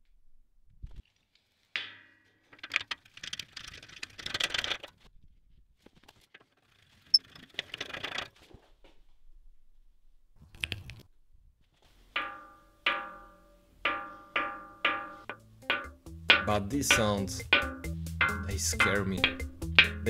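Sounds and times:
scraping rattles of threads: 1.8 - 5.0, 6.1 - 8.6, 11.8 - 20.0
metal clinks and rattling: 12.2 - 20.0
ringing metallic clink: 12.2 - 20.0.

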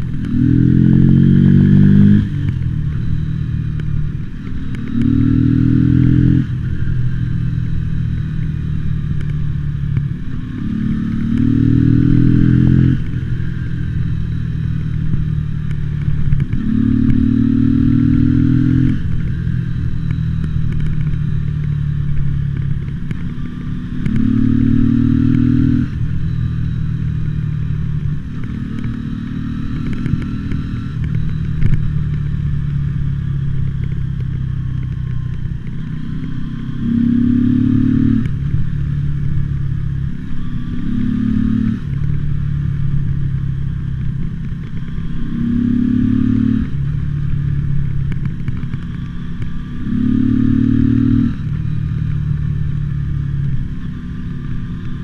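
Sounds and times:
motorcycle engine revving: 0.0 - 55.0
crackling clicks: 18.8 - 24.3, 29.7 - 36.4, 46.6 - 55.0.

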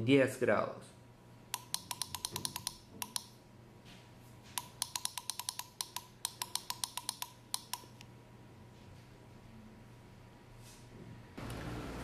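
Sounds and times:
rapid button clicks: 1.6 - 3.3, 4.6 - 7.9.

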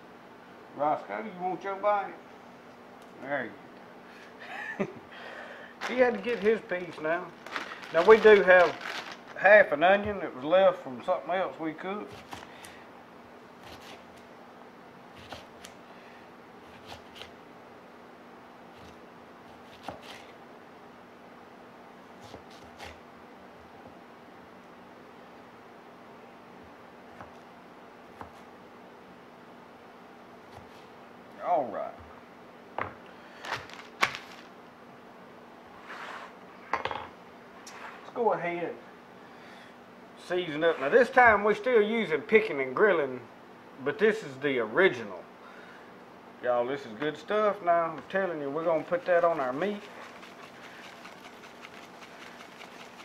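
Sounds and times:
faint steady hum: 0.0 - 53.0
knife slicing onion on board: 12.1 - 12.8, 13.6 - 14.2, 15.1 - 15.8, 16.7 - 17.4, 18.7 - 20.4, 22.2 - 23.0, 28.2 - 28.5, 30.5 - 30.9
knife chopping on wooden board: 18.8 - 20.3.

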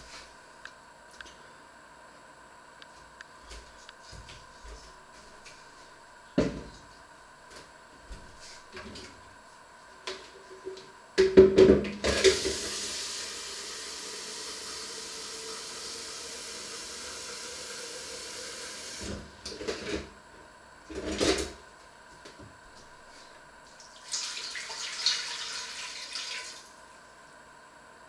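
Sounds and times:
tap water filling a jug: 12.0 - 19.2, 23.9 - 26.7.

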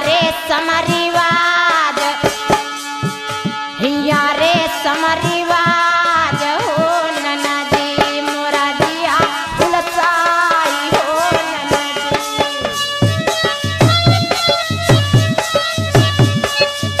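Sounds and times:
hand drum strokes: 8.9 - 17.0.

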